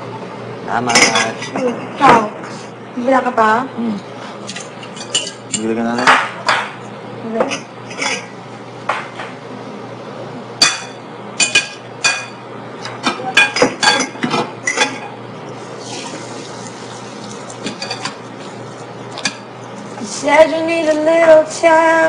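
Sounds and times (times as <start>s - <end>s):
metal utensils clinking on dishes: 1.0s - 1.7s, 4.5s - 6.2s, 17.6s - 18.2s.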